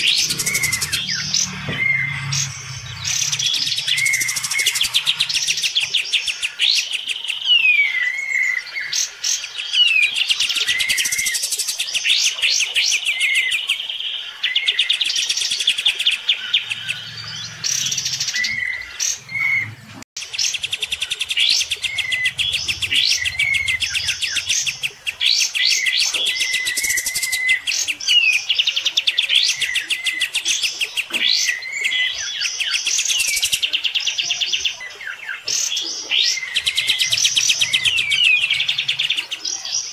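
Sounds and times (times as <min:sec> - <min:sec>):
slurred whistled bird notes: 0:00.0 - 0:06.6, 0:15.9 - 0:28.5, 0:36.1 - 0:39.7
birds singing buzzy trills: 0:00.0 - 0:39.9.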